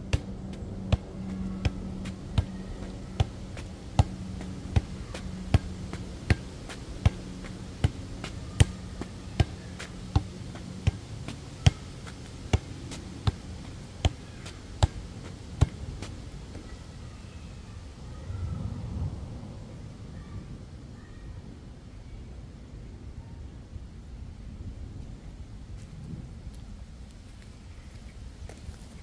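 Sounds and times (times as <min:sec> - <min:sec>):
ball kicked with sharp slap: 0:04.0 - 0:11.0.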